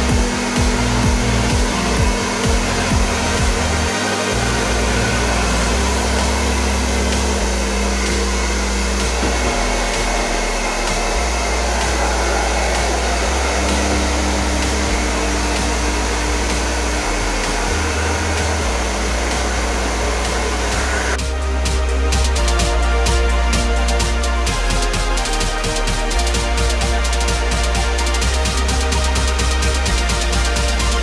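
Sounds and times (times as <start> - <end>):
background music with bass: 0.0 - 31.0
hair dryer running: 0.0 - 31.0.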